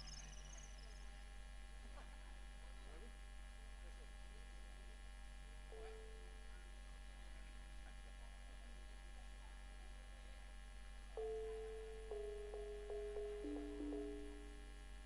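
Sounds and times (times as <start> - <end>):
electrical mains hum: 0.0 - 15.0
instrument playing slow held notes: 11.2 - 14.8.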